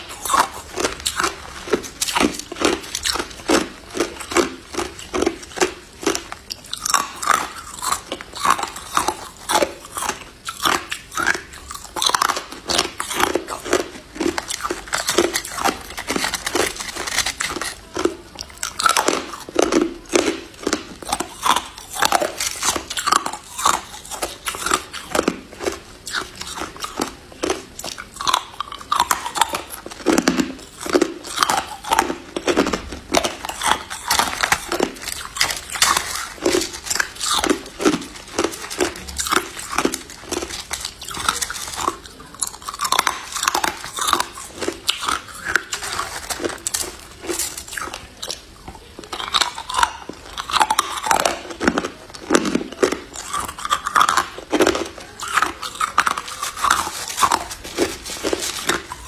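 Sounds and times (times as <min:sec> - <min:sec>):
crushed ice crunching: 0:00.0 - 0:48.4, 0:49.1 - 0:59.0.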